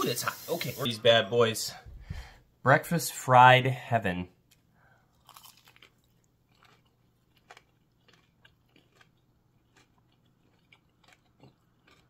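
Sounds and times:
faint chewing crunches: 0:04.5 - 0:12.0.

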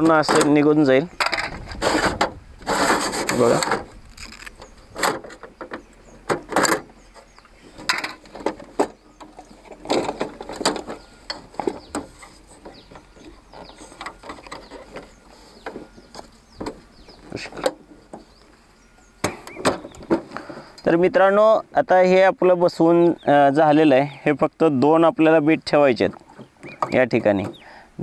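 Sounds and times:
plastic and metal parts rattling: 0:01.2 - 0:17.9.

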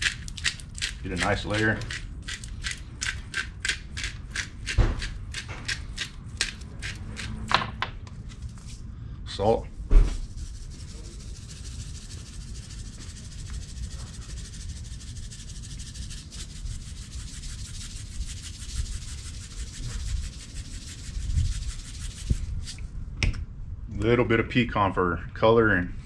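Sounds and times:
salt grinder grinding: 0:00.0 - 0:07.4, 0:10.4 - 0:22.4.

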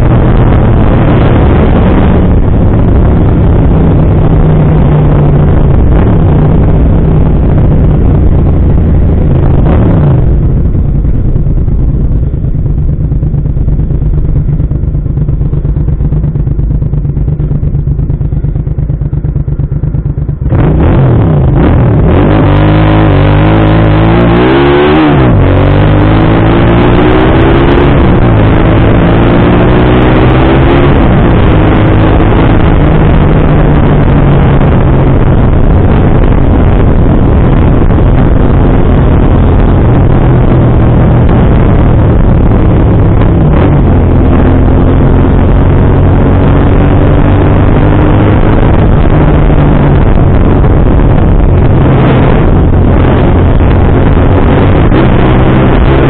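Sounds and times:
motorcycle engine: 0:00.0 - 0:56.0
wind rushing past microphone: 0:20.5 - 0:56.0.

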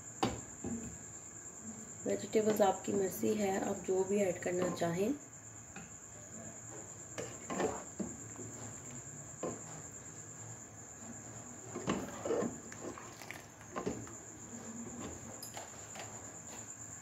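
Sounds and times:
spoon scraping cooking pot: 0:07.2 - 0:09.8, 0:11.0 - 0:14.0.

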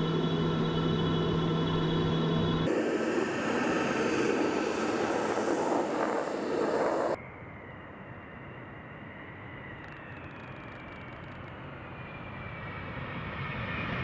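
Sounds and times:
cockpit hum: 0:00.0 - 0:07.2
distant jet whine: 0:00.0 - 0:14.0
jet flying past: 0:02.6 - 0:09.8.

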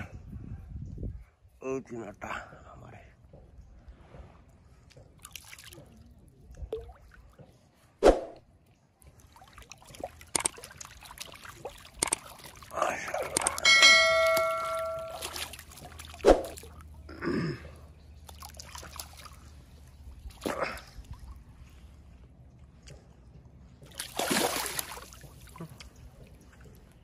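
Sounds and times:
fish splashing in shallow water: 0:04.0 - 0:07.5, 0:09.0 - 0:17.1, 0:17.9 - 0:22.0, 0:23.8 - 0:26.9
short ringing tone: 0:13.6 - 0:15.4.

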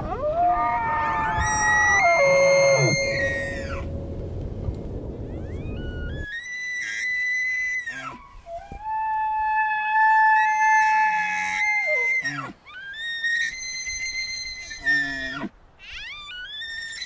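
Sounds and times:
deer stags bugling: 0:00.8 - 0:04.2.

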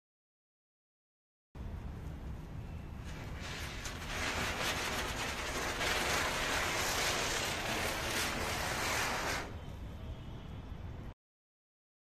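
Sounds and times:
ground spinner firework hissing: 0:02.8 - 0:09.8.

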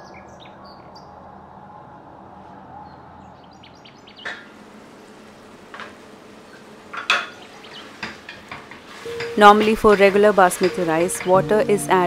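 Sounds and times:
steady background hum: 0:00.0 - 0:12.0
small birds chirping: 0:02.8 - 0:04.5, 0:07.3 - 0:08.0
steel kitchenware knocking: 0:08.0 - 0:11.6.

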